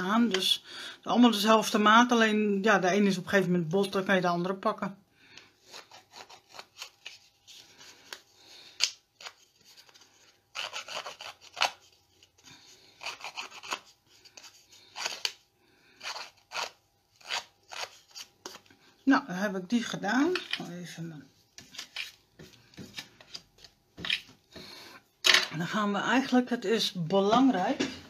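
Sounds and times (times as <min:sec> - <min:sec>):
tool scraping paper edge: 0:05.6 - 0:07.3, 0:09.2 - 0:12.3, 0:13.0 - 0:15.4, 0:16.0 - 0:18.6.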